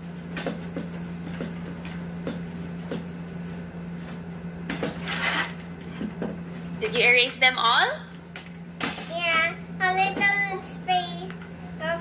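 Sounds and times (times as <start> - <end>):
low electrical hum: 0.0 - 12.0
eraser rubbing on paper: 0.1 - 4.2.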